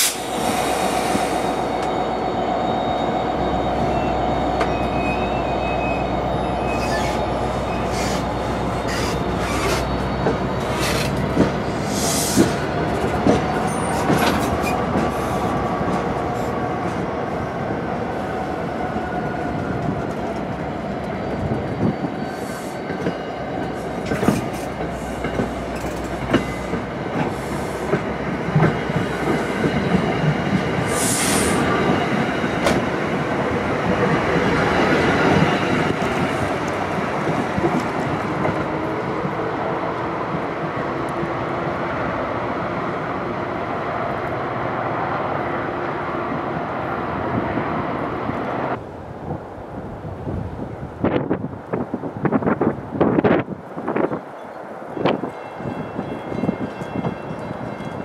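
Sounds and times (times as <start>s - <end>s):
train coaches rumbling past: 0.0s - 58.0s
wheel squeal: 1.5s - 10.0s.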